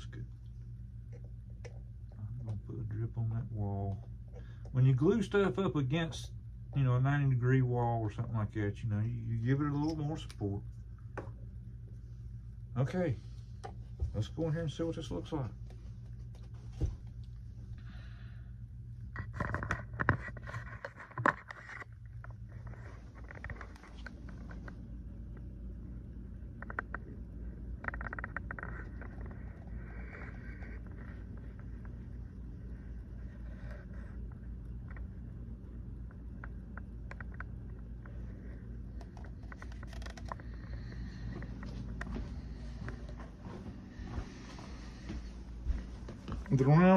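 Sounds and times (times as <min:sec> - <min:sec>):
steady low hum: 0:00.0 - 0:46.9
plastic object scraping and rustling: 0:19.2 - 0:24.7, 0:38.1 - 0:40.6.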